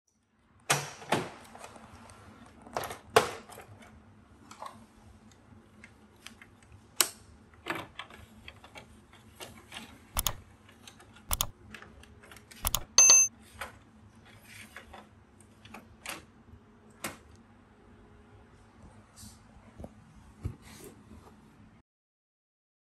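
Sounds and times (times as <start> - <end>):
short electronic beep: 12.6 - 13.3.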